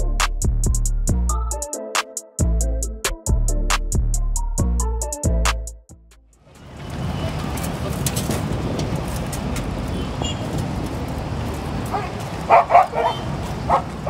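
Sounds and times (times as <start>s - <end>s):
distant traffic rumble: 6.2s - 14.0s.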